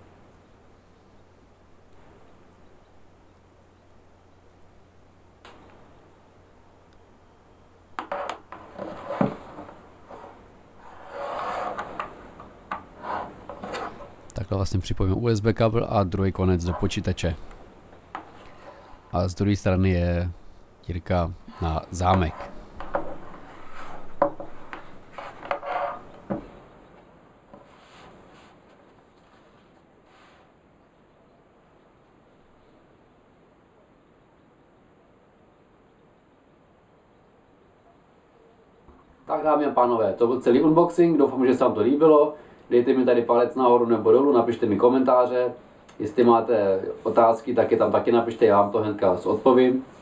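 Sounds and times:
rubbing and scraping: 8.0 - 14.3, 16.4 - 19.1, 21.4 - 26.5, 27.5 - 30.6.

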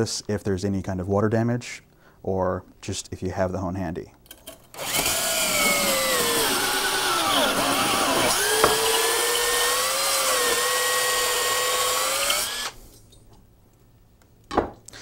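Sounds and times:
cordless drill motor whine: 4.8 - 12.8.

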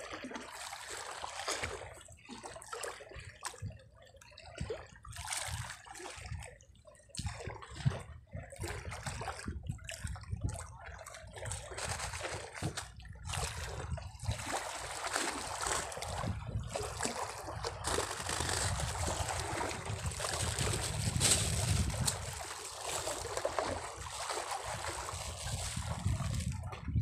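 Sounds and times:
seawater sloshing and trickling: 0.0 - 27.0
plastic bag crinkling: 17.8 - 23.2.

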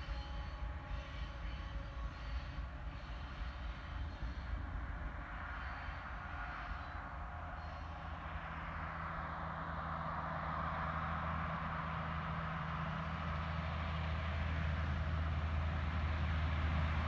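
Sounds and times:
truck engine drone: 0.0 - 17.0.

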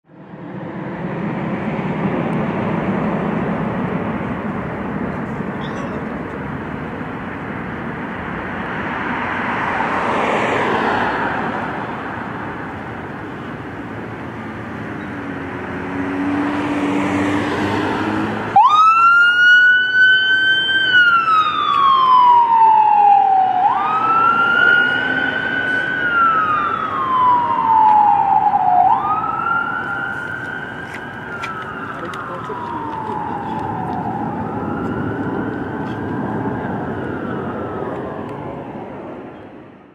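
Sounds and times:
vehicle noise: 0.0 - 39.9
fire engine siren wailing: 15.4 - 39.3.

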